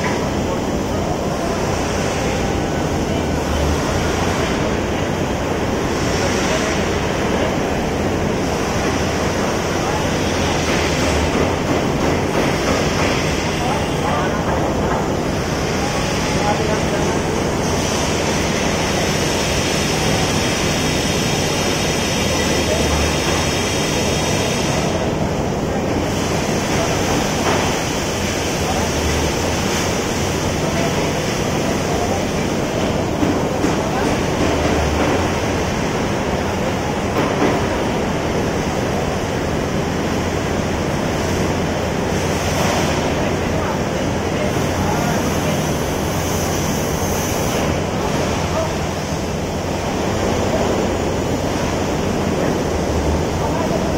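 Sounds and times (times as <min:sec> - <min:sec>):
construction machinery rumble: 0:00.0 - 0:53.9
steady rushing noise: 0:00.0 - 0:53.9.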